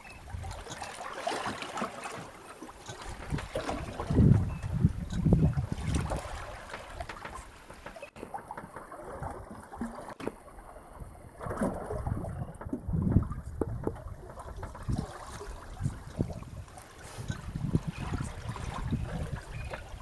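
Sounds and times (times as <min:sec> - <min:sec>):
wind buffeting microphone: 0:00.0 - 0:00.8, 0:03.0 - 0:07.4, 0:11.0 - 0:20.0
water lapping against boat: 0:00.0 - 0:20.0.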